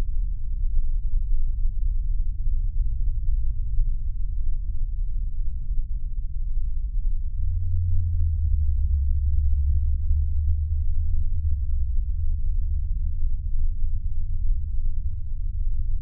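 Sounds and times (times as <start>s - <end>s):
deep low hum: 0.0s - 16.0s.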